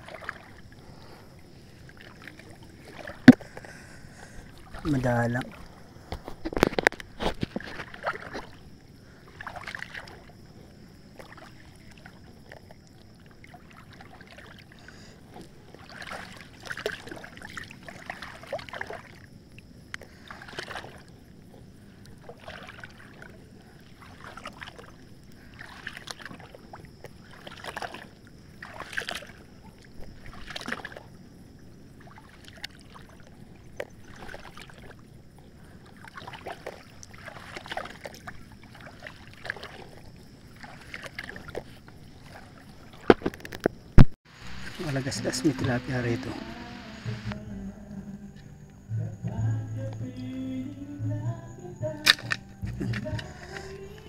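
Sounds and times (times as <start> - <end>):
river water sloshing and splashing: 0.0 - 47.5, 52.0 - 54.0
faint high tone: 44.8 - 54.0.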